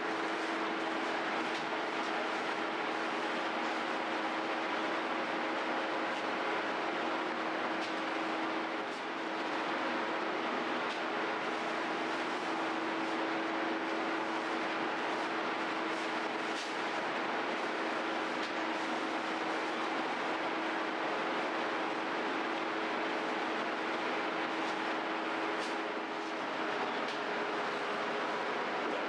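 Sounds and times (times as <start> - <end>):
machinery running with low hum: 0.0 - 29.0.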